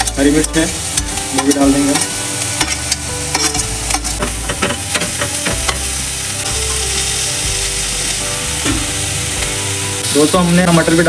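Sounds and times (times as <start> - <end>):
steel ladle clinking and scraping: 0.0 - 5.9
oil sizzling: 0.0 - 11.0.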